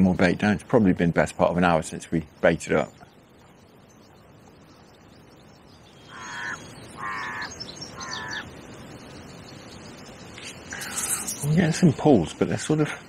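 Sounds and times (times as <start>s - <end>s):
crow cawing: 6.1s - 8.5s.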